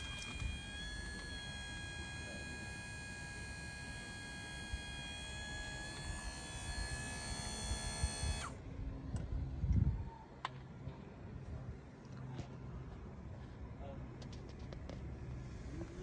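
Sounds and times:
electric motor whine: 0:00.0 - 0:08.6.

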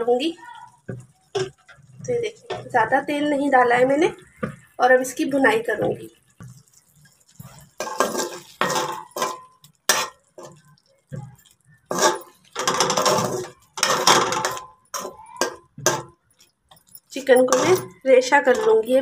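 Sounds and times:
chicken frying in oil: 0:00.0 - 0:19.0
spoon scraping a metal pot: 0:00.9 - 0:03.2, 0:03.8 - 0:19.0.

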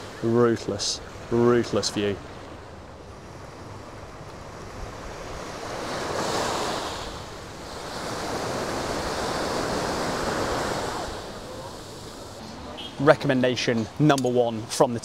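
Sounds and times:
ocean surf breaking on beach: 0:00.0 - 0:14.8.

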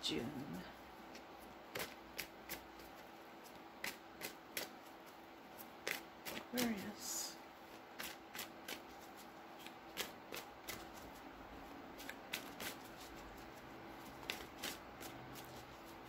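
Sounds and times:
cards being shuffled: 0:01.0 - 0:16.0.

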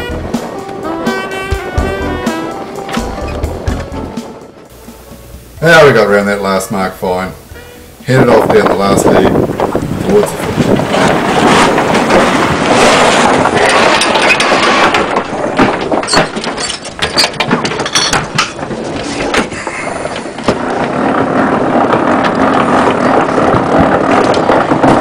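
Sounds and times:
wind buffeting microphone: 0:05.8 - 0:16.1, 0:17.4 - 0:25.0.

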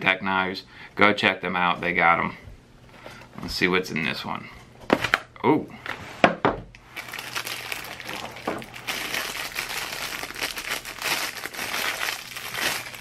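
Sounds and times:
plastic wrapping crinkling: 0:06.8 - 0:13.0.

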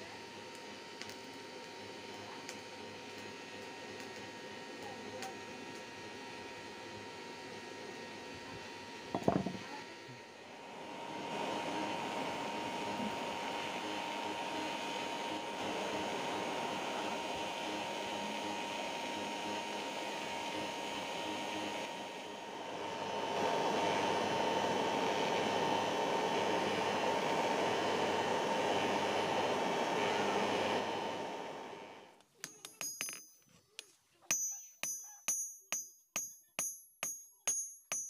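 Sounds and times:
electric blower whining: 0:00.0 - 0:32.1.

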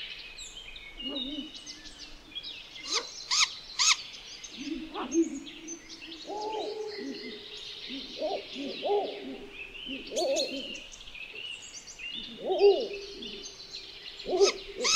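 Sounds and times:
small birds chirping: 0:00.0 - 0:14.9
owl hooting: 0:04.6 - 0:10.8, 0:12.2 - 0:13.5, 0:14.2 - 0:14.9.

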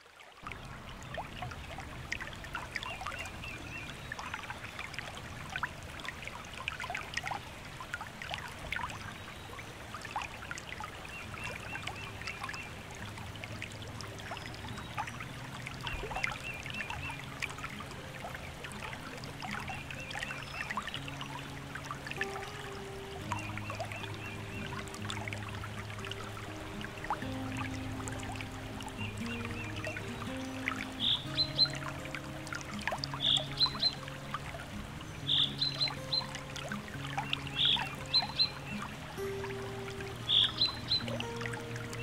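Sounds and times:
stream water babbling: 0:00.0 - 0:42.0
low background music: 0:09.8 - 0:42.0.

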